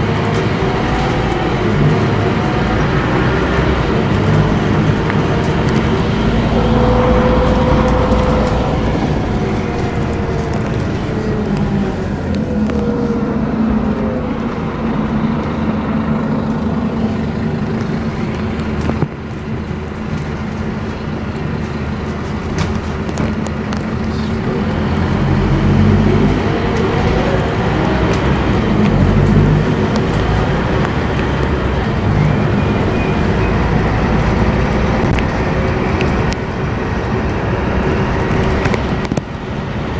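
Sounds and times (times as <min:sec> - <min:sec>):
bus diesel engine drone: 0:00.0 - 0:39.9
road noise: 0:00.0 - 0:39.9.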